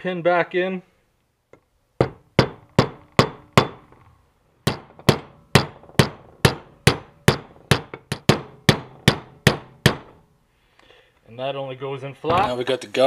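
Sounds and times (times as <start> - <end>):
hammer tapping metal: 2.0 - 4.0, 4.6 - 10.2.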